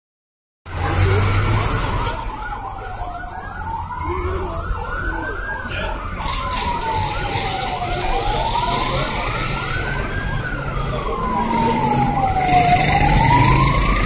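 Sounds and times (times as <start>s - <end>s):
emergency siren wailing: 0.7s - 14.0s.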